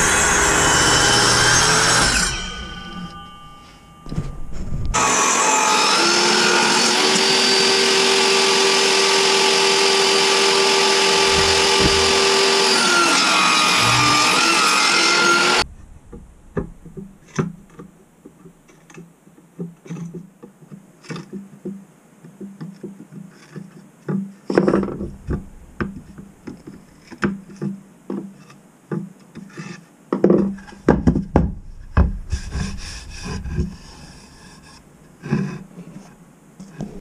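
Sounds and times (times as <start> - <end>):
metal tool scraping on wood: 0.8 - 5.0, 10.8 - 15.6
wood knocking on workbench: 11.1 - 12.4.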